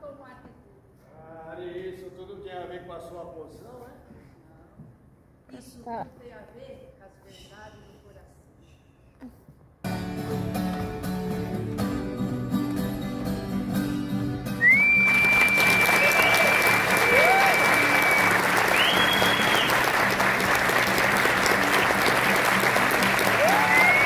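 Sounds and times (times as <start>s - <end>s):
acoustic guitar playing: 9.8s - 15.8s, 16.8s - 24.0s
whistling: 14.6s - 20.1s, 23.2s - 24.0s
audience applause: 14.6s - 24.0s.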